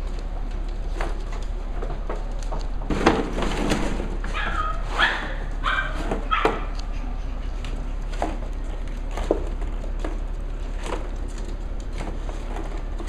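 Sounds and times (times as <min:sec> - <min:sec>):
puppies yipping: 0:04.2 - 0:08.2.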